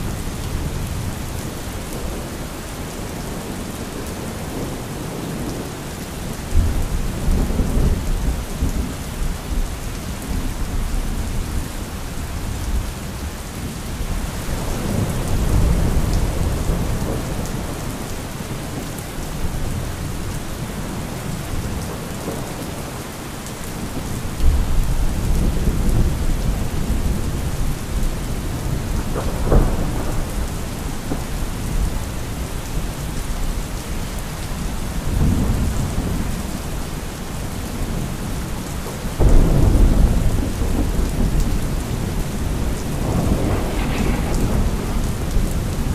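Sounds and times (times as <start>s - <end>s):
steady rain hiss: 0.0s - 45.9s
thunder rumbling: 23.8s - 33.6s, 34.6s - 45.9s
sharp thunder crack: 39.2s - 45.9s.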